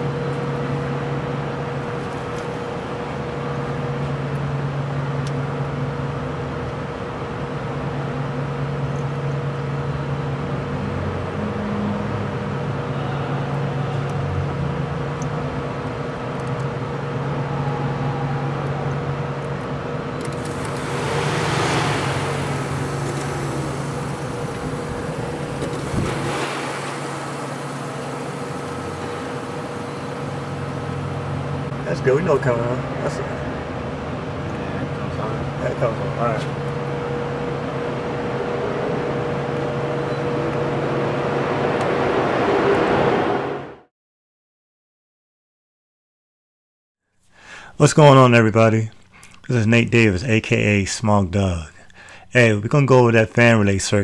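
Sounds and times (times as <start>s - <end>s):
radiator fan rushing air: 0.0s - 43.7s
car engine idling: 20.2s - 31.9s.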